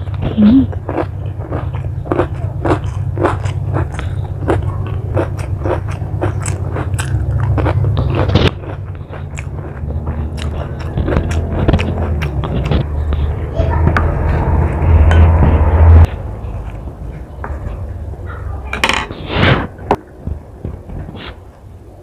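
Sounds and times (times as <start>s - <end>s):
person chewing crunchy food: 0.0s - 13.4s
steady low hum: 0.0s - 22.0s.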